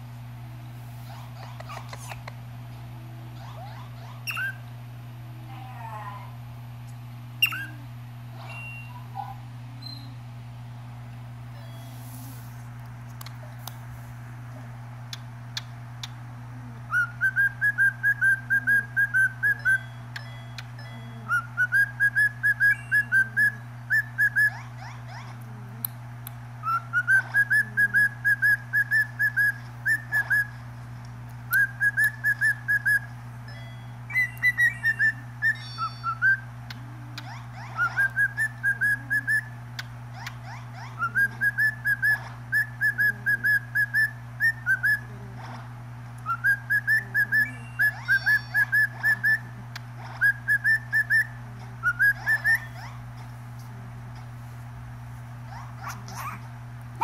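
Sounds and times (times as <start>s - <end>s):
cockatiel whistling: 4.2s - 4.6s, 16.9s - 19.9s, 21.3s - 24.6s, 26.6s - 30.5s, 31.5s - 33.1s, 37.7s - 39.6s, 41.0s - 45.1s, 46.2s - 49.5s, 50.2s - 53.0s.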